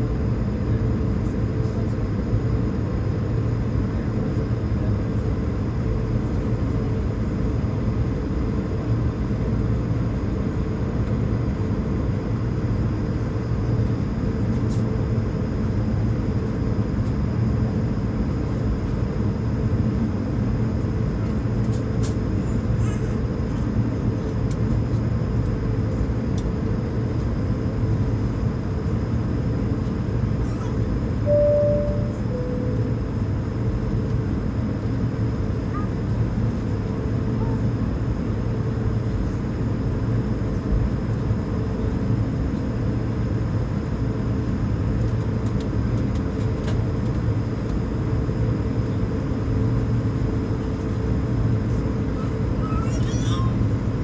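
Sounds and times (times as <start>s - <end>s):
airliner cabin drone: 0.0s - 54.0s.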